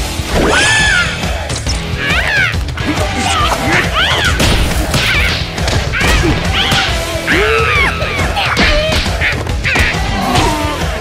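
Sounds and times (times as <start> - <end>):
background music: 0.0 - 11.0
squeaky cartoon character cries: 2.0 - 2.6
whacks and crashes: 4.2 - 7.0.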